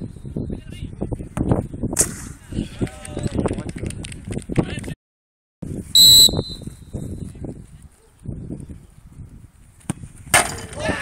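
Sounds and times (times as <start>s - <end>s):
referee whistle blast: 6.0s - 6.8s.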